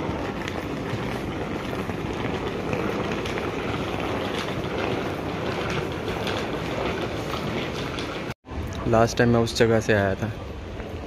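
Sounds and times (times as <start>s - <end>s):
footsteps: 0.0s - 8.4s
suitcase wheels rolling on tiles: 0.0s - 8.4s.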